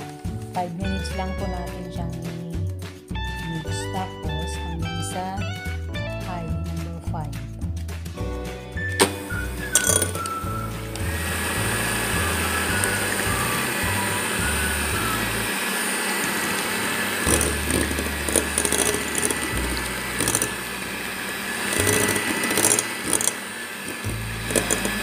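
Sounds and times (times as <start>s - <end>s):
background music with bass: 0.0s - 15.5s, 17.3s - 21.2s, 24.0s - 25.0s
hand mixer motor whine: 9.0s - 25.0s
beaters rattling against bowl: 9.7s - 10.4s, 17.3s - 20.6s, 21.7s - 25.0s.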